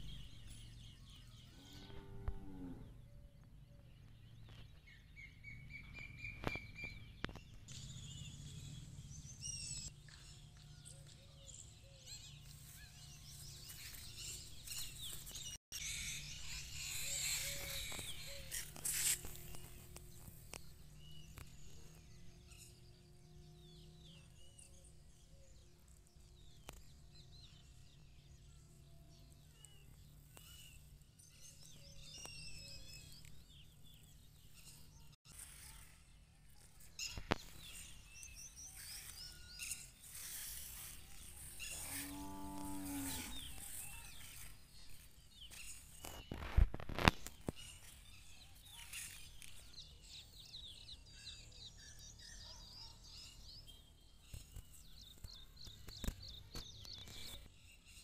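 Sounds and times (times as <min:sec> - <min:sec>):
small birds chirping: 0:00.0 - 0:58.0
cow mooing: 0:01.6 - 0:03.0, 0:41.7 - 0:43.6.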